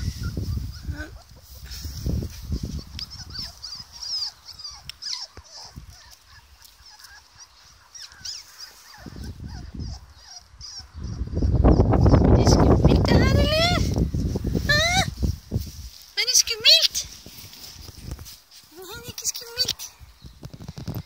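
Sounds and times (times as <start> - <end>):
puppies squeaking and whimpering: 0.0 - 12.7.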